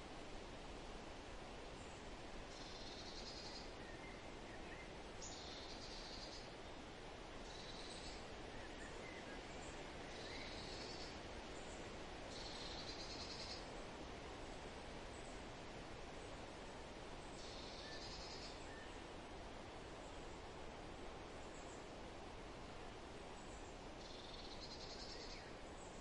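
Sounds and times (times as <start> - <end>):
faint wind hiss: 0.0 - 26.0
faint bird chirps: 1.8 - 6.8, 7.4 - 13.7, 17.3 - 19.0, 23.4 - 26.0
bird singing: 2.5 - 6.5, 7.4 - 11.7, 12.3 - 13.6, 17.3 - 19.0, 23.4 - 26.0.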